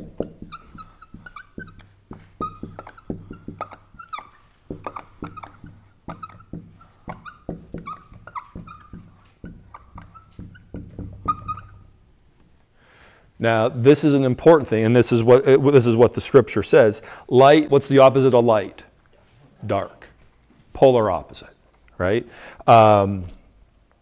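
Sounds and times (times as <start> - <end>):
marker squeaking on whiteboard: 0.0 - 12.2.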